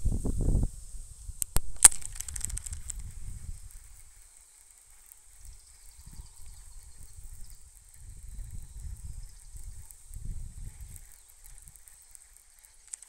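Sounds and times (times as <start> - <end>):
fishing reel click: 1.4 - 4.2, 7.1 - 13.0
fishing reel ticking: 1.4 - 13.0.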